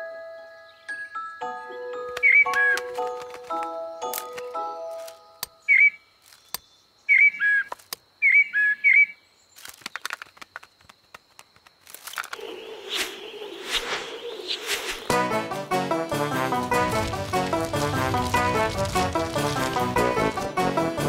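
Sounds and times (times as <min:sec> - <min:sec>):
high whistled bird chirps: 0:05.6 - 0:09.2, 0:12.4 - 0:15.2
rustling rising whoosh: 0:12.4 - 0:20.6.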